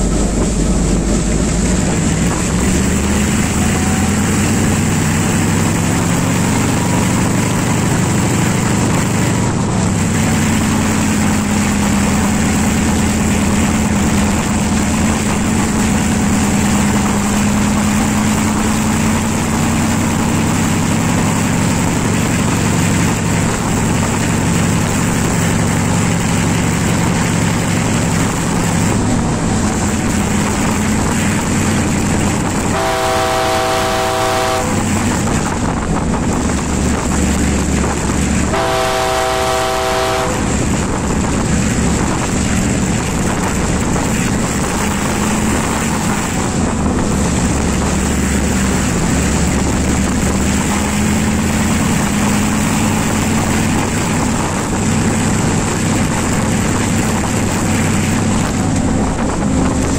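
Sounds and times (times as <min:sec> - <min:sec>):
locomotive engine drone: 0:00.0 - 0:59.9
wheels on rails: 0:00.0 - 0:59.9
train horn blasts: 0:32.5 - 0:35.2, 0:38.5 - 0:40.6.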